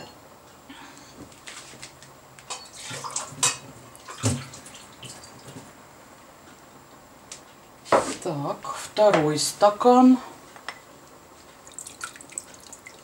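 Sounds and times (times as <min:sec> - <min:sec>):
water pouring from a glass: 0:11.6 - 0:13.0.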